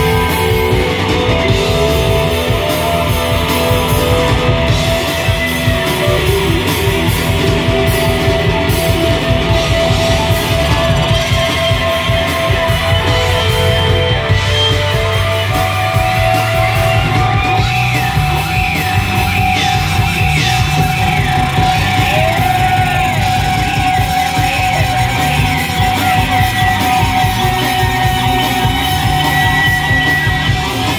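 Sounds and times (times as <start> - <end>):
rock band with electric guitars: 0.0 - 30.9.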